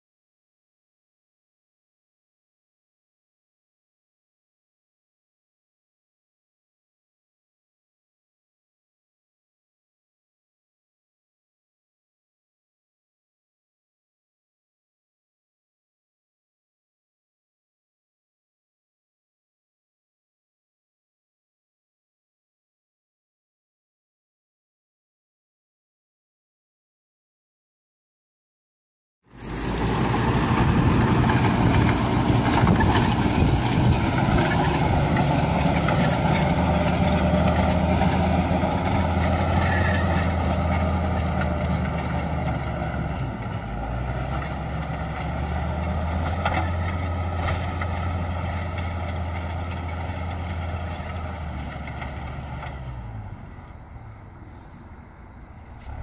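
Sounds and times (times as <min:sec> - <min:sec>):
tractor engine under load: 0:29.3 - 0:56.0.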